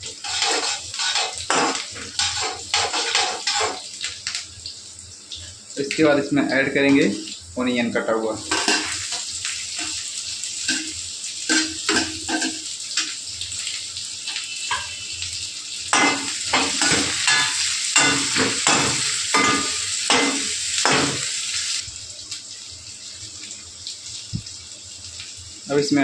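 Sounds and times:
onions sizzling in hot oil: 0.0s - 26.0s
metal spoon scraping and stirring: 0.1s - 1.4s, 2.2s - 3.8s.

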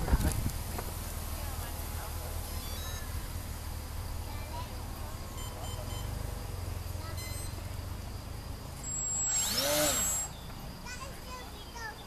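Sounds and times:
low wind rumble: 0.0s - 5.4s
electric motor whine rising and falling: 8.8s - 10.4s.

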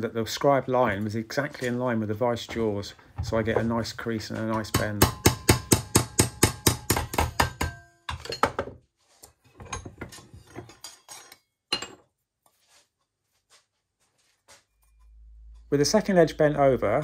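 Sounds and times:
hammer striking metal sheet: 4.5s - 7.9s.

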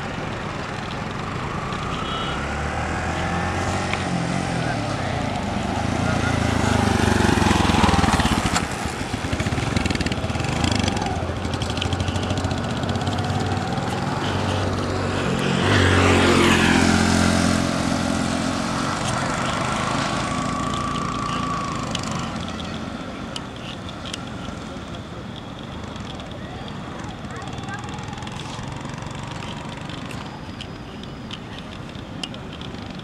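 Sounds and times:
traffic noise: 0.0s - 33.0s
motorcycle engine passing: 0.8s - 25.1s.

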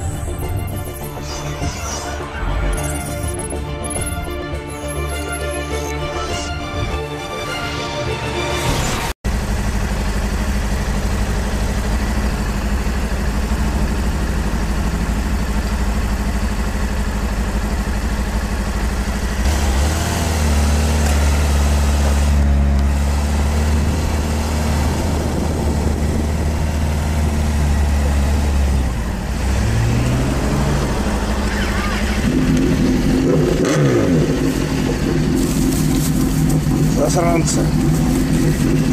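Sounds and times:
deep strong drone: 0.0s - 17.8s, 19.2s - 38.9s
motorcycle engine idling: 9.3s - 19.5s, 22.8s - 29.5s, 30.6s - 38.9s.

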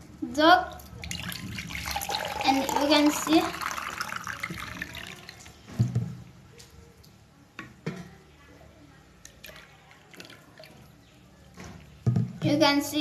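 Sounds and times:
water trickling in plastic jug: 0.7s - 5.8s, 9.2s - 12.0s.

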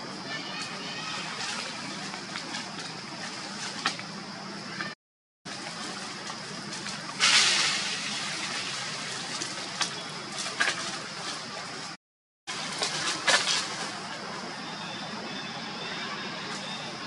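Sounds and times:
dry leaves rustling: 0.0s - 15.0s
steady high-pitched hiss: 5.5s - 17.0s
loud hissing surge: 7.1s - 9.7s.

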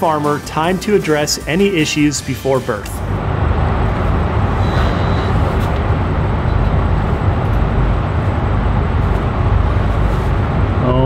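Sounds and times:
low rumble: 2.9s - 11.0s.

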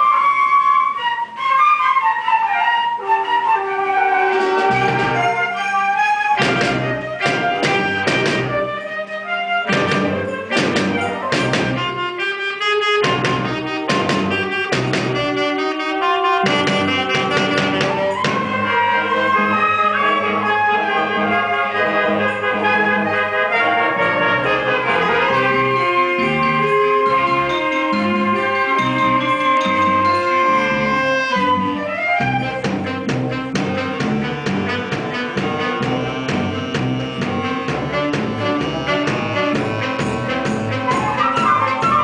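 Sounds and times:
concert band playing: 3.0s - 42.0s
percussion hits: 4.5s - 5.5s, 6.3s - 8.8s, 9.7s - 12.1s, 13.0s - 15.8s, 16.4s - 18.7s, 24.4s - 31.4s, 32.2s - 42.0s.

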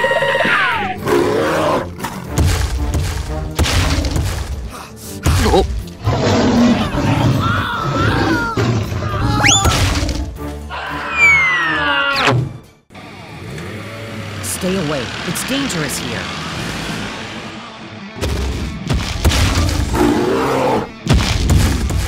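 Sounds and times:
cartoon music: 8.2s - 10.0s, 10.7s - 12.3s
rising whistle: 9.4s - 9.7s
sliding whistle tone: 9.4s - 9.7s.

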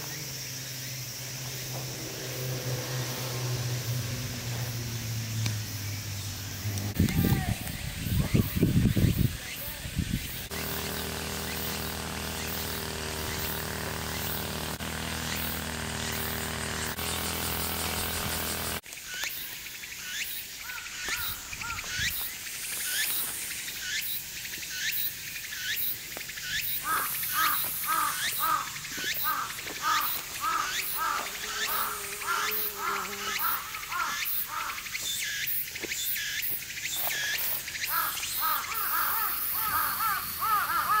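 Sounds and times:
steady hum: 10.0s - 18.8s.

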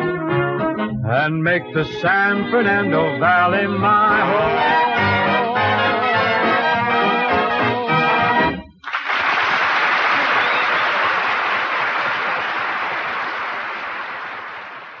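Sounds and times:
audience applauding: 8.8s - 15.0s.

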